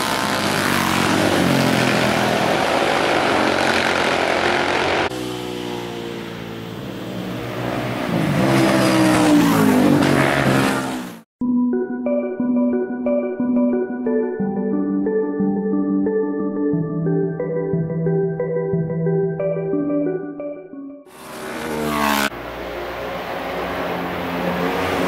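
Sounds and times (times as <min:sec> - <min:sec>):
racing motorcycles passing at speed: 0:00.0 - 0:11.3, 0:21.1 - 0:25.0
music: 0:11.4 - 0:21.1.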